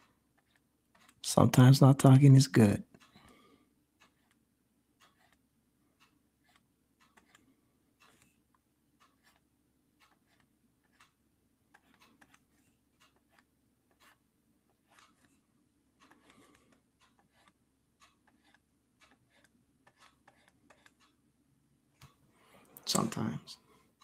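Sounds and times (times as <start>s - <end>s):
small irregular clicks and taps: 0.0s - 1.7s, 2.8s - 4.4s, 5.0s - 21.2s, 22.0s - 23.2s.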